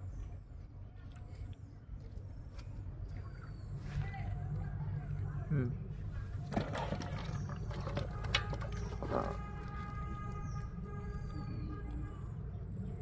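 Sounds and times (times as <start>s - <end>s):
fish slapping in a bucket: 6.4s - 10.7s.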